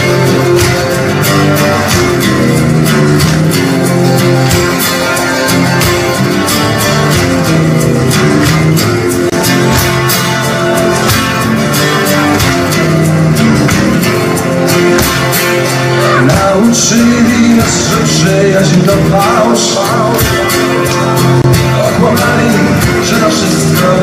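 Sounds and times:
acoustic guitars strumming: 0.0 - 24.0
hand percussion: 0.0 - 24.0
man singing: 15.8 - 24.0.

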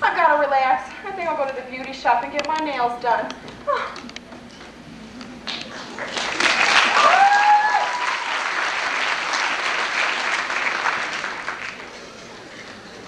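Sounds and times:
audience applauding: 5.4 - 12.5
person whooping: 6.9 - 8.4.

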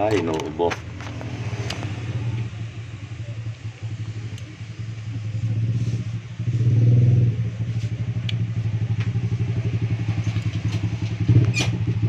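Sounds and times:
small engine idling: 7.6 - 12.0.

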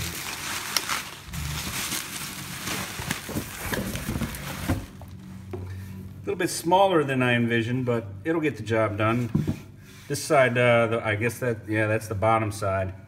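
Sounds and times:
bubble wrap crinkling: 0.0 - 5.3.

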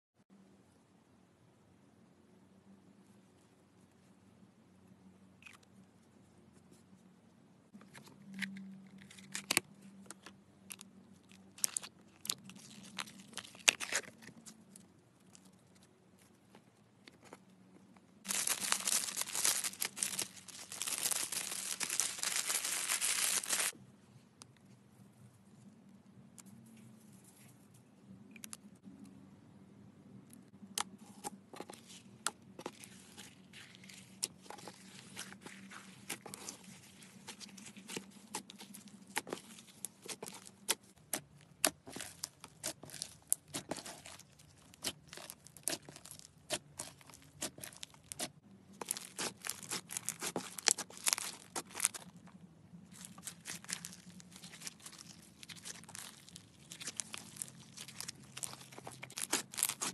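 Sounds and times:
slime beads crackling and popping: 18.2 - 23.7, 41.6 - 52.2, 52.9 - 59.9.

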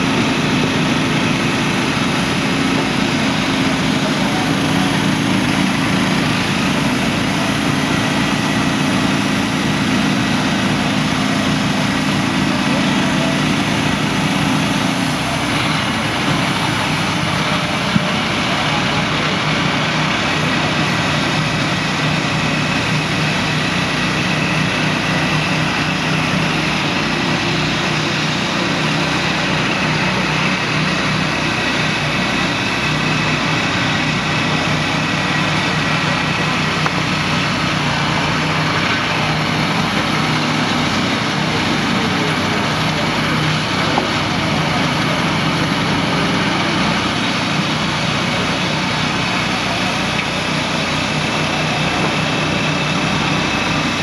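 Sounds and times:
gas engine running steadily: 0.0 - 54.0.

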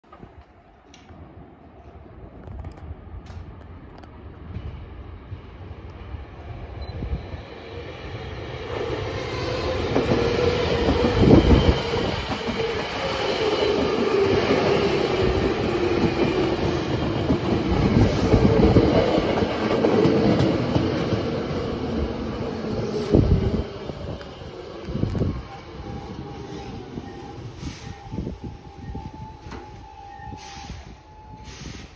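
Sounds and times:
electric train passing: 0.4 - 31.9
train motor whine: 23.1 - 31.9.

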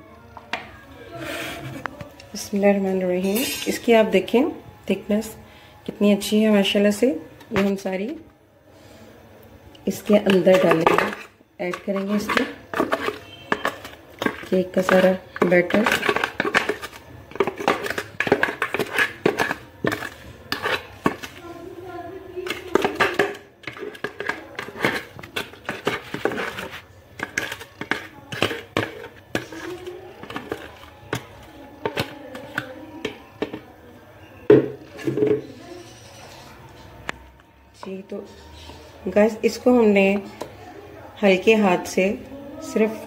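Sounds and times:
metal spoon scraping bowl: 2.4 - 4.0, 9.9 - 21.8, 22.4 - 33.6, 34.5 - 36.9
plastic jug clinking on bowl: 10.1 - 21.4, 34.5 - 35.5.

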